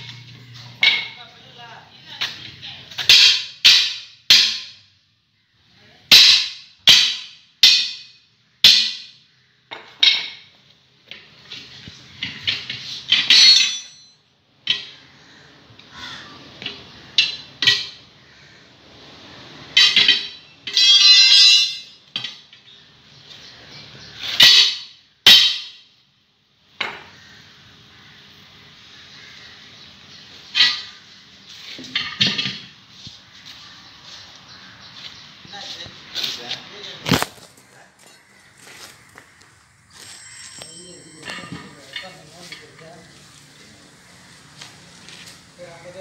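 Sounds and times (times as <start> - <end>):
tyre levers clanking on wheel rim: 19.8 - 22.7.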